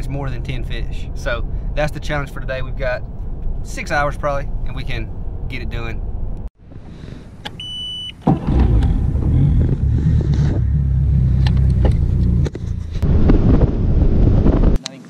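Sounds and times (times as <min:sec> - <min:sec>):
short electronic beep: 0:07.6 - 0:08.2.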